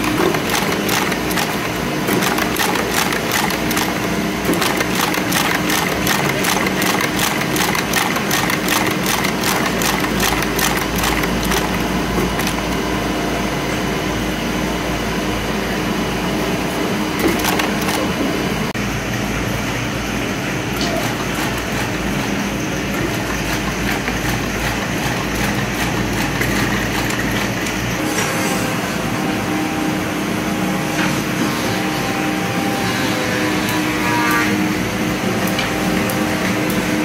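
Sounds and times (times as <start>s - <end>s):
metallic clatter of brush machine: 0.0s - 12.8s, 17.2s - 18.2s
steady motor hum: 0.0s - 37.0s.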